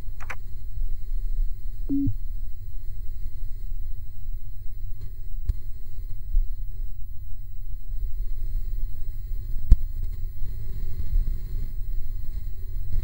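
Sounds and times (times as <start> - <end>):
short low electronic beep: 1.9 - 2.2.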